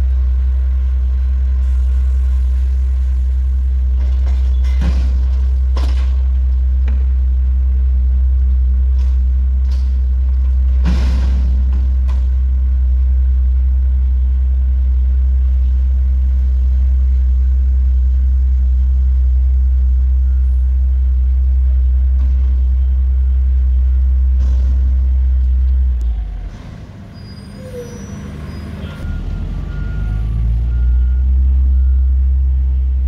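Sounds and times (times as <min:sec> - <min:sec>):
diesel engine at high revs: 0:20.2 - 0:33.0.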